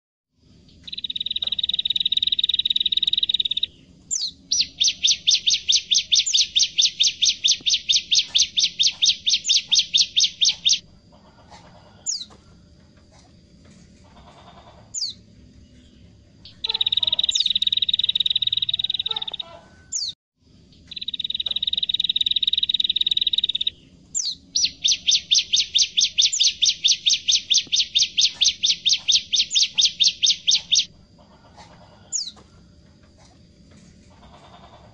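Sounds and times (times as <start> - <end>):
bird singing buzzy trills: 0.4 - 12.4, 14.0 - 32.4
short high bird calls: 16.5 - 20.1, 20.9 - 30.9.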